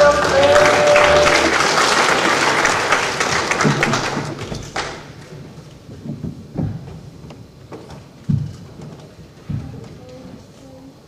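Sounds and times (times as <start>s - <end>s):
audience applause: 0.0s - 5.2s.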